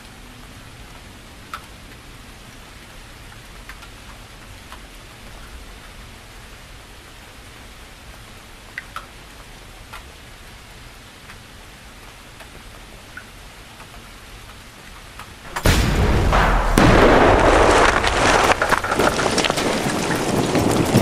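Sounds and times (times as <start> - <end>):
faint steady hiss: 0.0 - 18.8
rushing rumbling noise: 15.4 - 21.0.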